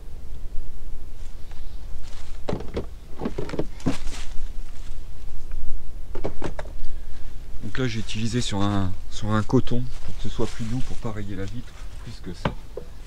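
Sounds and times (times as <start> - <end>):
knocks and rustles from handling: 2.0 - 4.8.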